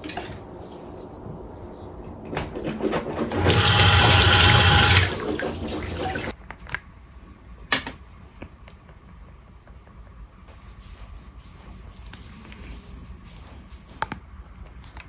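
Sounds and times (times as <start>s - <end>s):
tap water running into sink: 3.3s - 6.3s.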